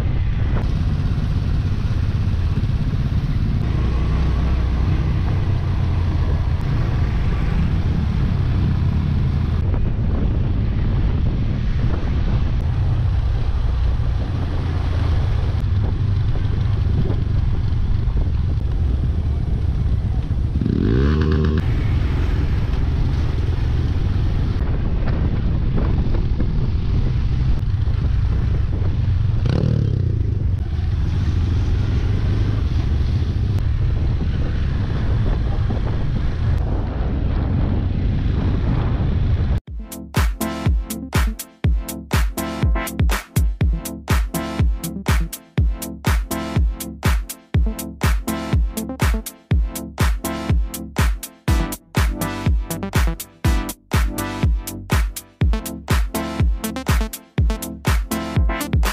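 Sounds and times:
motorcycle engine revving: 0:00.6 - 0:09.6, 0:12.7 - 0:24.7, 0:25.9 - 0:36.6.

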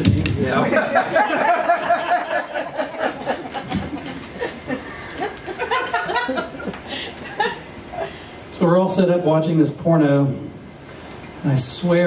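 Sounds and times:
audience laughing: 0:00.5 - 0:08.1.

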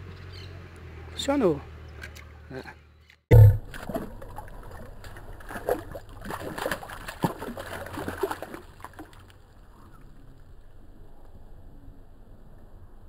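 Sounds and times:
fish splashing in shallow water: 0:03.4 - 0:11.1.

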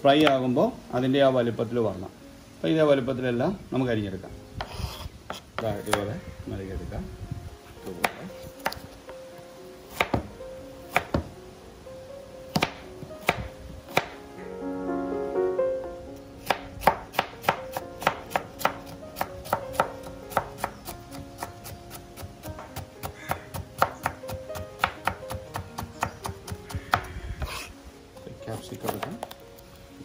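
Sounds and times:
knife chopping vegetables: 0:16.4 - 0:27.7.

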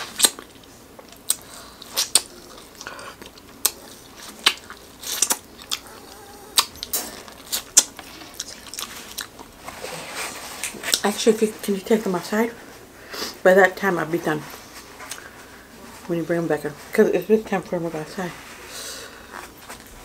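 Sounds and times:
crunching corn on the cob: 0:00.0 - 0:05.9.

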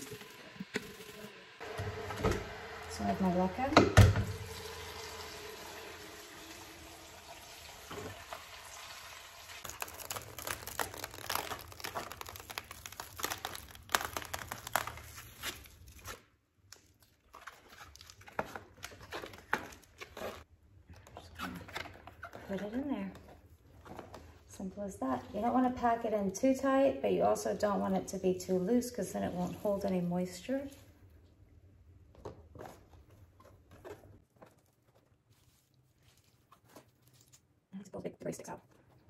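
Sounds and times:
plastic mesh crinkling: 0:09.6 - 0:20.5.

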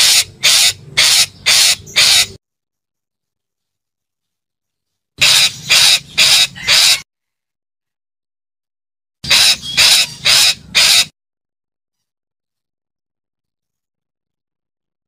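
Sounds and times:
parakeet harsh high calls: 0:00.0 - 0:02.4, 0:05.2 - 0:07.0, 0:09.2 - 0:11.1.

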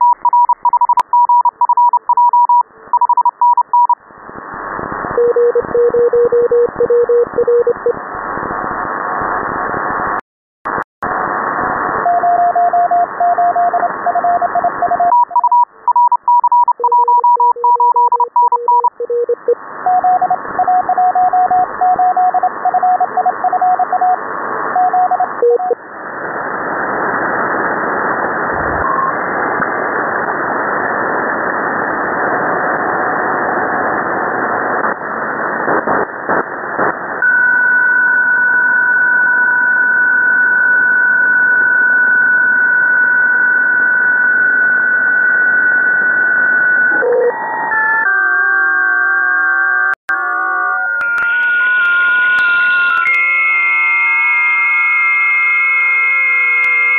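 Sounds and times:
morse code beeping tones: 0:00.0 - 0:04.0, 0:05.2 - 0:07.9, 0:12.1 - 0:24.2, 0:24.8 - 0:25.8, 0:46.9 - 0:47.4
steady digital-mode tones: 0:00.0 - 0:04.0, 0:05.2 - 0:08.0, 0:12.0 - 0:25.8, 0:42.6 - 0:47.6
radio static hiss: 0:22.4 - 0:37.3.

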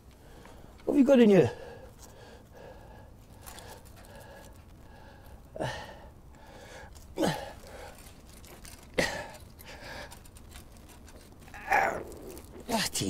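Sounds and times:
man grunting with effort: 0:07.2 - 0:07.6, 0:11.6 - 0:12.7.

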